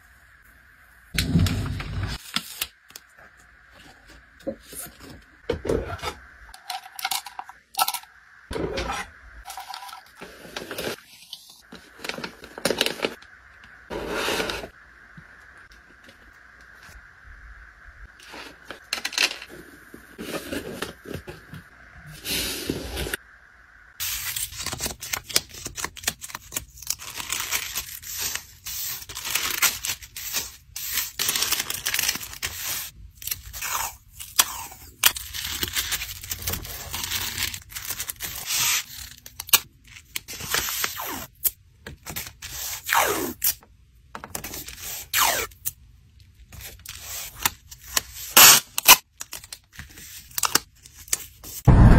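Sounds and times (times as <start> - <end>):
paper rustling and tearing: 24.0 - 41.3.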